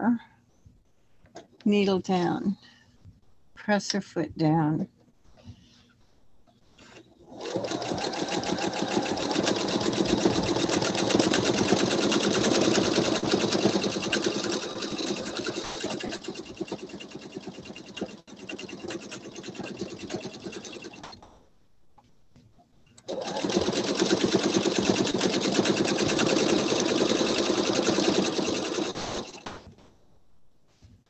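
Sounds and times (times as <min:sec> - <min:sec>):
sewing machine stitching fast: 0:07.2 - 0:21.2, 0:23.0 - 0:29.7.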